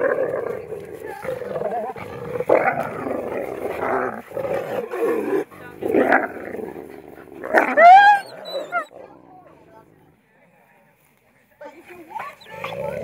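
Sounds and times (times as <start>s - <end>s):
wolves growling and snarling: 0.0s - 10.2s, 12.3s - 13.0s.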